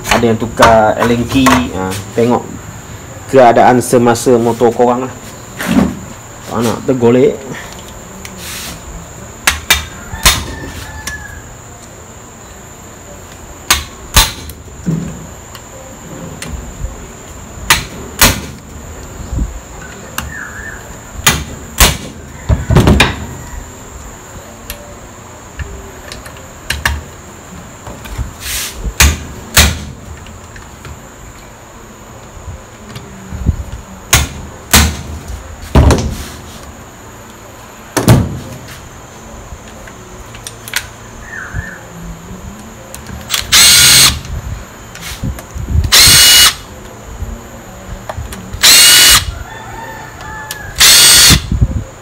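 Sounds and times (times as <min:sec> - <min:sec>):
hammer striking impact driver: 0:13.7 - 0:14.5.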